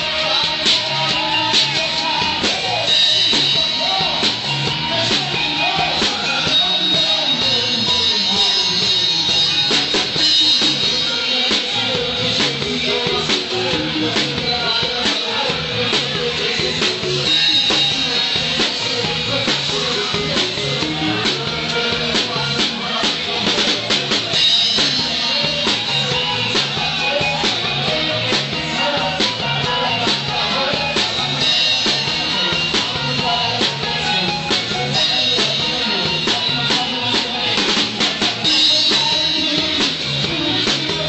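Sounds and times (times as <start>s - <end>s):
drum kit beat: 0.0s - 41.0s
electric guitar: 0.0s - 41.0s
person singing: 0.0s - 41.0s.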